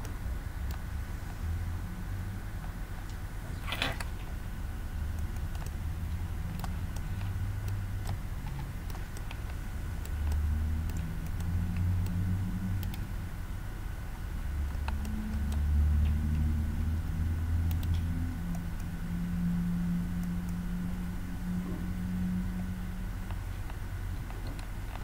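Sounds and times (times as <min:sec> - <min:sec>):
low room rumble: 0:00.0 - 0:25.0
computer mouse clicks: 0:05.1 - 0:13.1, 0:14.6 - 0:16.6, 0:17.6 - 0:19.0, 0:23.2 - 0:25.0.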